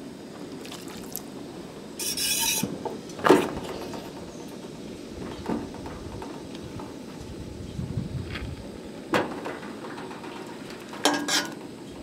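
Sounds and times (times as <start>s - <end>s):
steady low rumble: 2.8s - 9.1s
metallic clank of pan: 11.0s - 11.6s.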